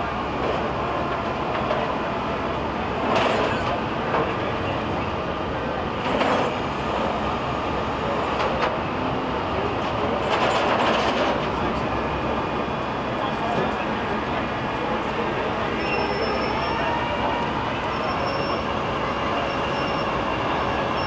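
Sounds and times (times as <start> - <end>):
rumble of vehicles and engines: 0.0 - 21.0.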